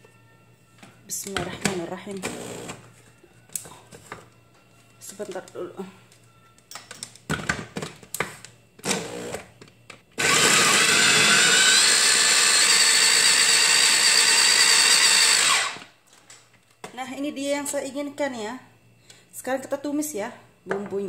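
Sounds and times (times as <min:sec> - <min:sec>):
chopper motor grinding: 0:10.2 - 0:15.8.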